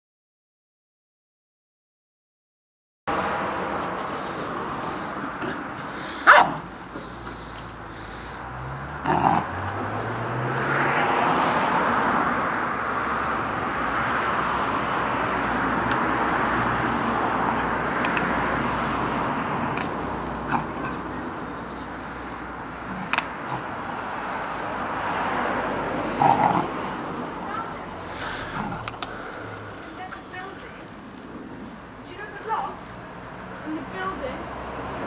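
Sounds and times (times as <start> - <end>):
puppy barking: 5.5 - 6.8.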